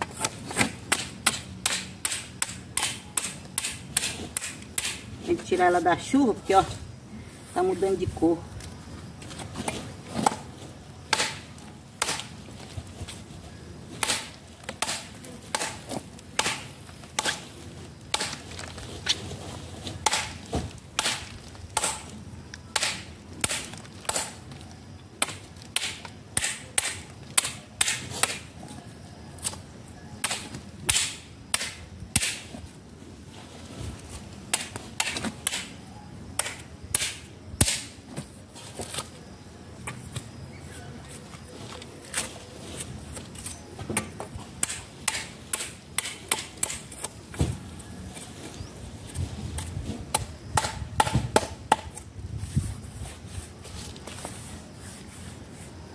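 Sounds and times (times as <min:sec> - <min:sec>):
hand tool chopping wood: 0:00.0 - 0:05.0, 0:11.1 - 0:12.3, 0:14.0 - 0:17.4, 0:18.1 - 0:18.4, 0:20.0 - 0:20.4, 0:21.0 - 0:22.1, 0:22.7 - 0:24.4, 0:25.2 - 0:28.5, 0:30.2 - 0:32.5, 0:34.5 - 0:35.7, 0:36.4 - 0:37.9, 0:43.9 - 0:47.5, 0:49.5 - 0:52.0.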